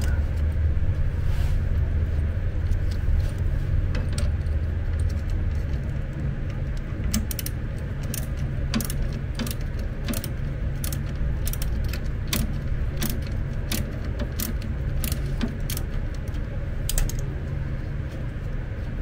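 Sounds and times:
steady low hum: 0.0 - 19.0
ratchet wrench clicking: 7.1 - 17.3.

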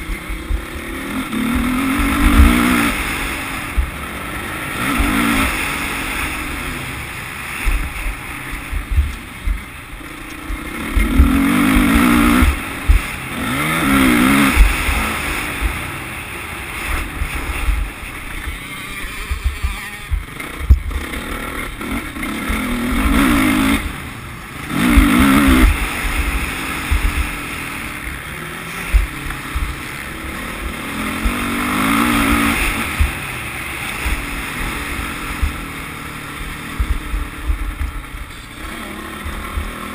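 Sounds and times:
dirt bike engine revving: 0.0 - 39.9
wind buffeting microphone: 17.0 - 21.2.

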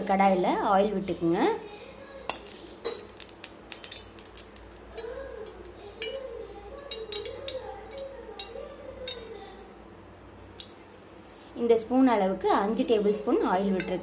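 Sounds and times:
spoon clicking against metal pan: 2.3 - 9.4, 10.6 - 10.9, 13.8 - 14.0.

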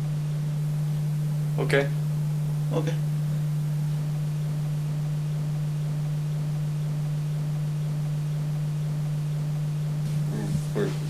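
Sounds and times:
low electrical hum: 0.0 - 11.0
faint hiss: 10.0 - 11.0.

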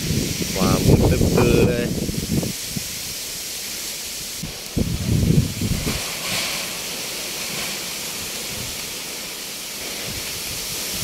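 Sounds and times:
wind buffeting microphone: 0.0 - 3.3, 4.2 - 6.8, 8.2 - 9.0, 9.8 - 11.0
wind thrashing leaves: 0.0 - 11.0.

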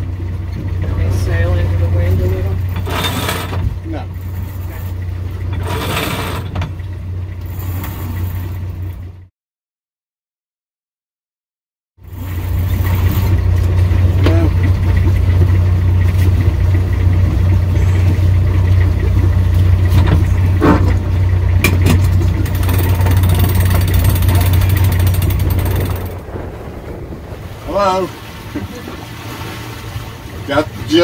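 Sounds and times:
boat engine running: 0.0 - 9.3, 12.0 - 31.0
winch clicking: 21.6 - 26.2.

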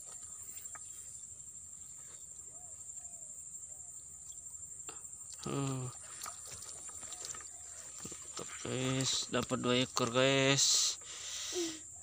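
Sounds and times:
insects trilling: 0.0 - 12.0
fish splashing in water: 5.4 - 10.2.

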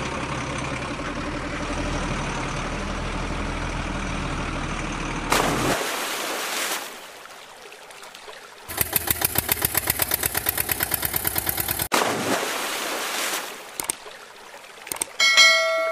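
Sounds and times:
toy splashing into water: 8.0 - 15.2
pulsing toy engine sound: 8.7 - 11.9.

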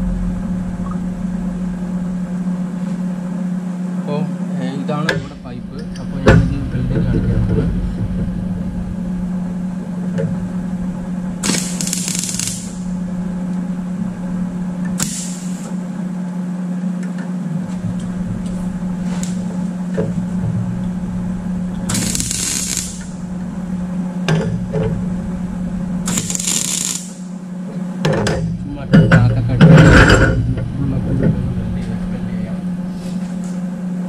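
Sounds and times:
welding arc buzzing crackle: 8.2 - 28.7
short hissing bursts: 15.0 - 15.7.

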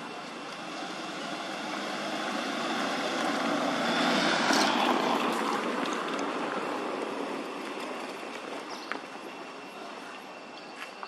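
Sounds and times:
vehicle passing: 0.0 - 8.3.

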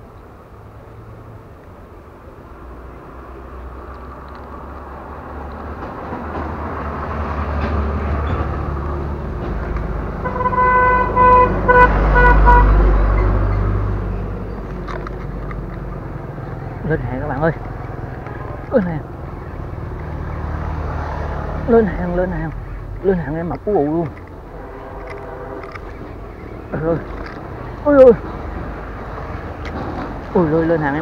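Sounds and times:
vehicle engine approaching: 0.0 - 31.0
vehicle horn beeping: 10.2 - 13.2, 24.5 - 26.3.

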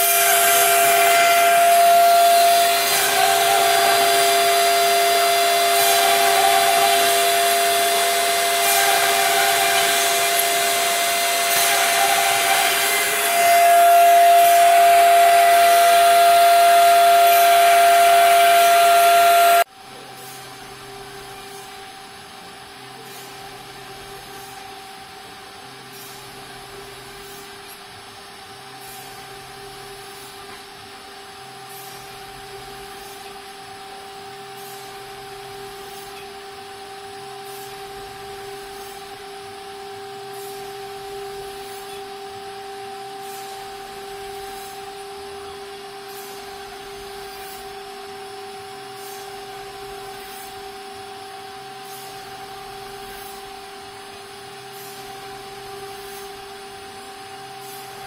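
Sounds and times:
router spindle whine: 0.0 - 58.0.

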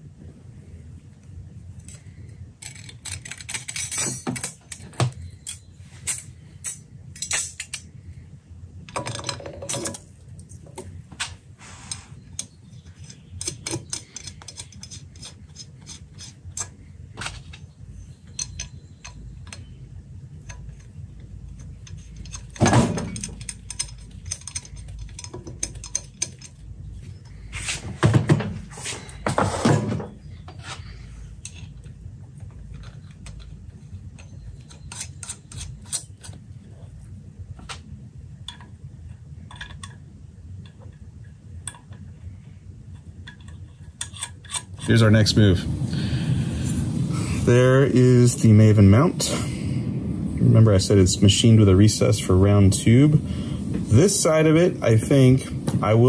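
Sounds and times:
low steady hum: 0.0 - 56.0
metal clinks and scrapes: 1.7 - 7.9, 11.6 - 19.2, 20.4 - 27.8.

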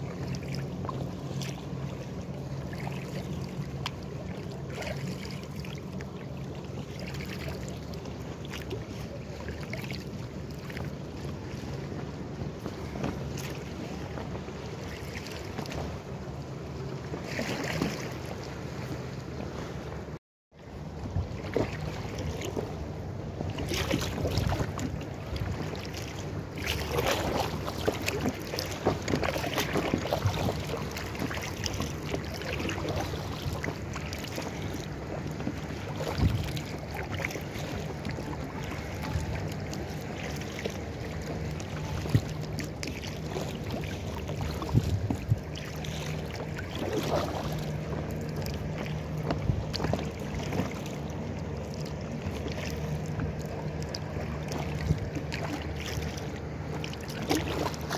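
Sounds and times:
water lapping against kayak: 0.0 - 57.9
wind on microphone: 26.8 - 40.2, 41.0 - 47.9, 54.3 - 55.6.

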